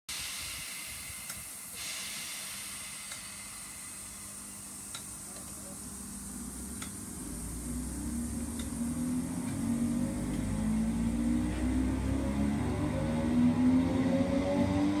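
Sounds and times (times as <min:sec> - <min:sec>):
train hiss: 0:00.1 - 0:11.8
train hum and rumble pulling away: 0:00.1 - 0:15.0.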